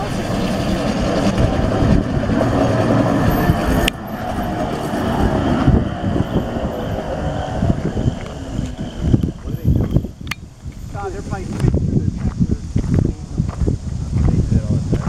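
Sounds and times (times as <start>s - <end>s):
wheels rumbling on rails: 0.0s - 15.0s.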